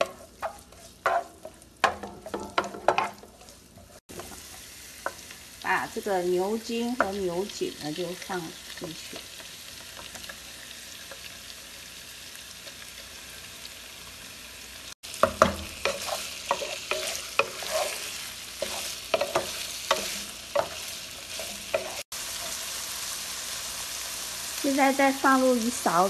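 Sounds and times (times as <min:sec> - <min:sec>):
wooden spatula scraping a pan: 0:00.0 - 0:05.2, 0:15.2 - 0:22.6
meat sizzling in oil: 0:00.0 - 0:26.0.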